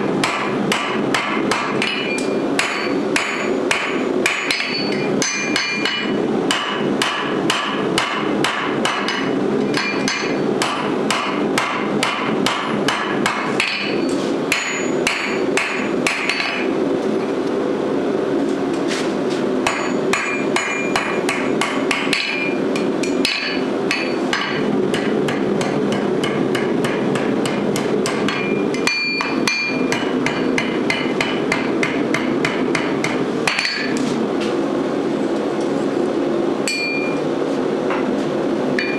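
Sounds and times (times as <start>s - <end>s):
hammer striking steel on anvil: 0.0s - 16.7s, 19.6s - 34.0s, 36.6s - 37.2s
anvil ringing: 1.8s - 6.8s, 13.6s - 16.6s, 19.7s - 26.0s, 28.1s - 31.4s, 36.7s - 37.2s.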